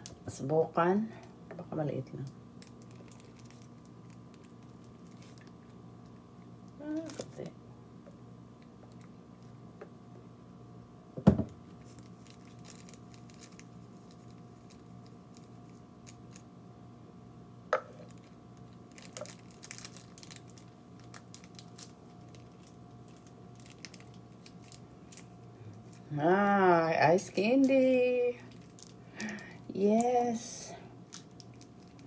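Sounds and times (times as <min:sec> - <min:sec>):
steady hum: 0:00.0 - 0:32.0
plastic bag crinkling: 0:02.6 - 0:06.2, 0:11.8 - 0:16.5, 0:18.0 - 0:32.0.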